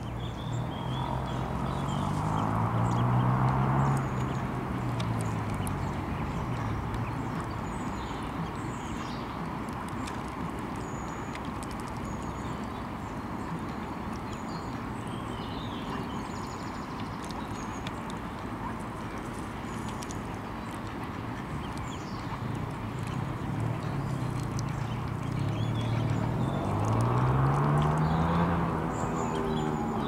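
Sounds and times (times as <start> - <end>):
ducklings peeping: 5.1 - 28.4.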